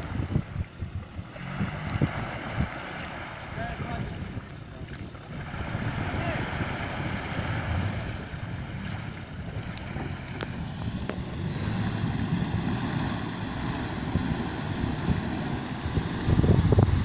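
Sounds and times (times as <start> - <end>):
waves washing: 0.0 - 17.0
wind buffeting microphone: 0.0 - 17.0.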